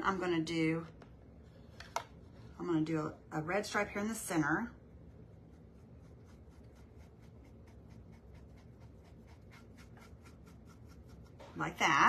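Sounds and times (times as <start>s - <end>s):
pen scratching: 5.6s - 11.4s.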